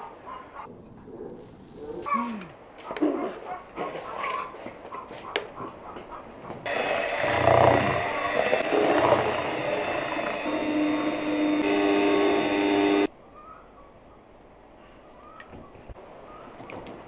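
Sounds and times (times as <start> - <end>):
electric mixer beating batter: 6.7 - 13.1
steady hum: 6.7 - 13.1.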